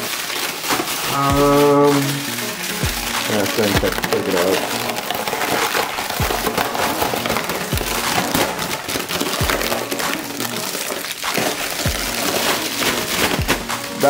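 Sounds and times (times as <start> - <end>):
background music: 0.0 - 14.0
plastic bag crinkling: 0.0 - 14.0
low kick drum thump: 1.3 - 1.6, 2.8 - 3.2.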